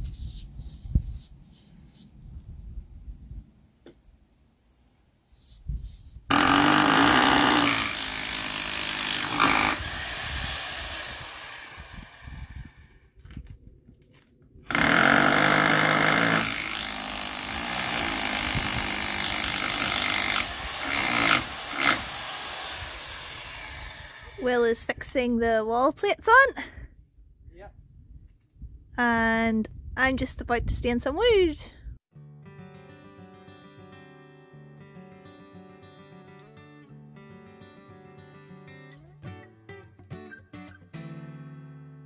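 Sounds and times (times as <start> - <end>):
power drill motor whine: 6.3 - 12.9, 14.7 - 24.4.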